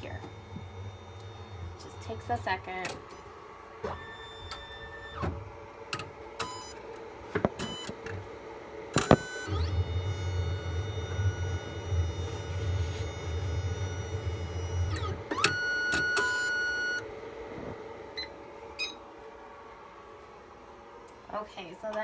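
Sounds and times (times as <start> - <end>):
motor hum with whine: 0.0 - 22.0.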